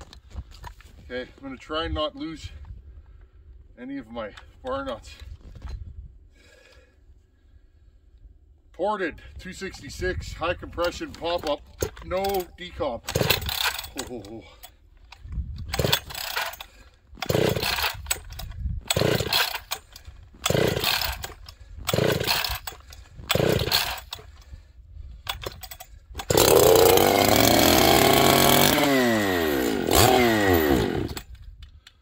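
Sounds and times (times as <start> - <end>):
starter cord pulls: 10.7 - 24.6, 25.2 - 32.0
chainsaw engine revving: 13.1 - 14.3, 15.7 - 24.2, 26.2 - 31.3.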